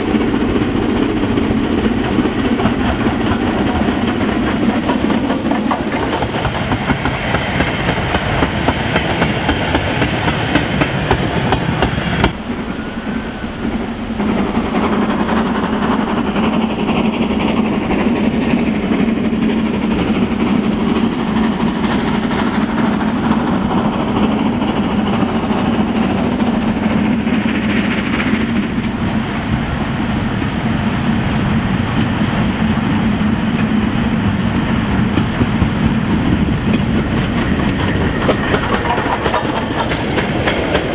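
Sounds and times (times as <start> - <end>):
steam locomotive approaching: 0.0 - 40.9
wagons clacking over rail joints: 0.1 - 29.0, 33.5 - 40.9.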